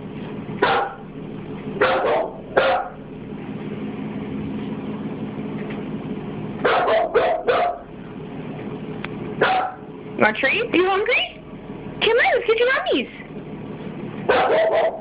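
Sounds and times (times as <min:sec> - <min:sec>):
low steady hum: 0:00.0 - 0:15.0
small dog barking: 0:00.6 - 0:01.0, 0:01.8 - 0:03.0, 0:06.6 - 0:07.9, 0:09.4 - 0:09.9, 0:14.3 - 0:15.0.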